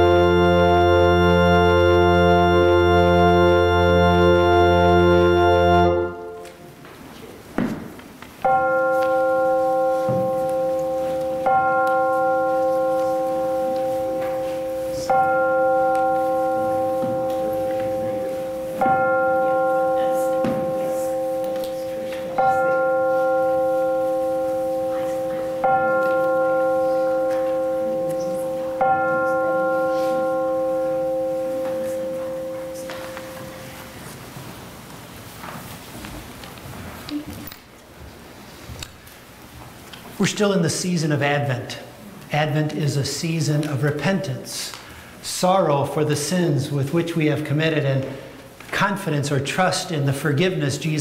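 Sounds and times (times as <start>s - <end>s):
church bell tolling: 0.0s - 6.6s, 8.4s - 34.2s.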